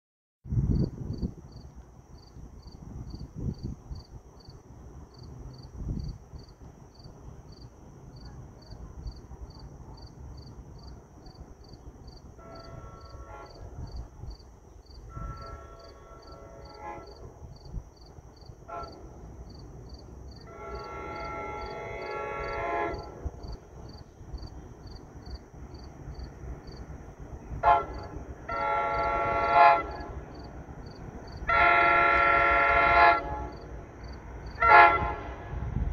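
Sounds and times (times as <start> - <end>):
train horn blasts: 12.3 - 13.9, 15.0 - 17.4, 18.6 - 19.3, 20.4 - 23.6, 27.6 - 30.3, 31.4 - 33.7, 34.5 - 35.8.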